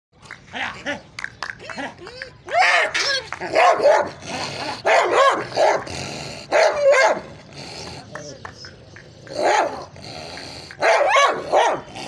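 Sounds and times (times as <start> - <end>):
dog barking: 3.5 - 4.1, 4.9 - 5.9, 6.5 - 7.2, 10.8 - 11.9.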